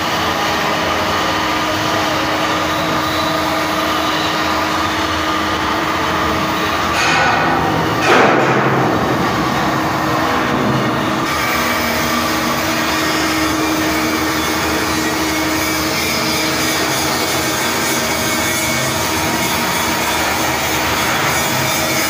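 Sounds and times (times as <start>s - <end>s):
ship machinery hiss and hum: 0.0s - 22.0s.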